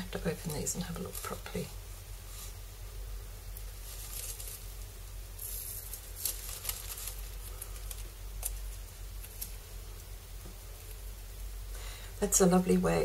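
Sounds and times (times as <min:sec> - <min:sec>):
plastic packet crinkling: 0:03.8 - 0:09.6.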